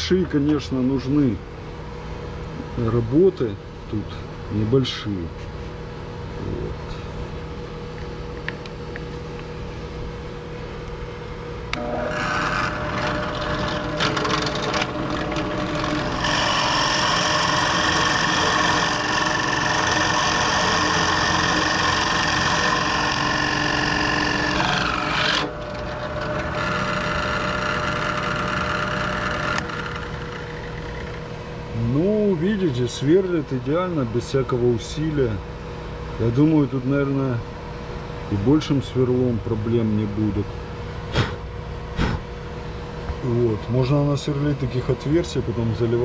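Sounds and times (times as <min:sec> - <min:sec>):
drill press motor humming: 0:11.7 - 0:31.4
drill bit boring into workpiece: 0:11.8 - 0:31.2.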